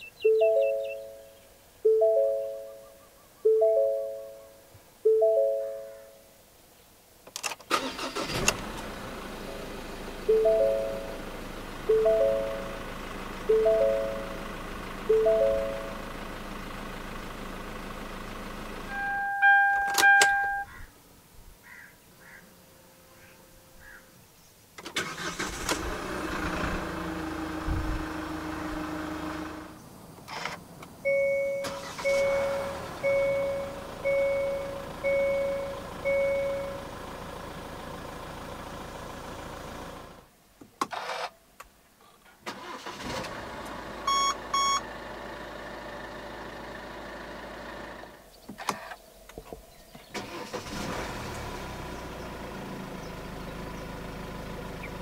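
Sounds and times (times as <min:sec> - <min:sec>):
dashboard warning chime beeps: 0:00.0 - 0:01.2, 0:01.8 - 0:04.4, 0:05.1 - 0:06.0, 0:10.3 - 0:11.2, 0:11.9 - 0:12.7, 0:13.5 - 0:14.3, 0:15.1 - 0:16.0, 0:18.9 - 0:20.7, 0:31.0 - 0:36.8, 0:44.1 - 0:44.8
diesel engine starting and idling: 0:07.7 - 0:20.7, 0:24.8 - 0:40.3, 0:40.9 - 0:41.4, 0:42.3 - 0:49.0, 0:49.9 - 0:55.0.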